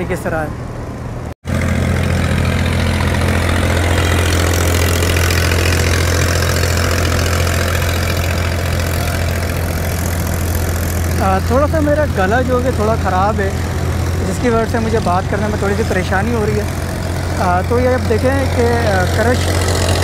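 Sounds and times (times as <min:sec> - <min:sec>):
road roller engine running: 0:00.0 - 0:20.0.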